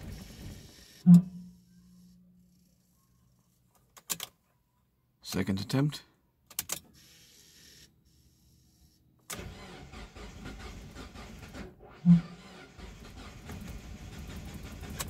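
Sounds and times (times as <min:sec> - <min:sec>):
engine cranking by starter motor: 0:09.2 - 0:15.0.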